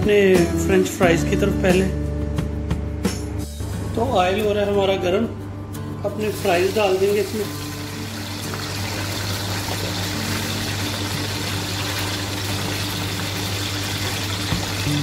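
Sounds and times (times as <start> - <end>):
fries sizzling in hot oil: 6.2 - 15.0.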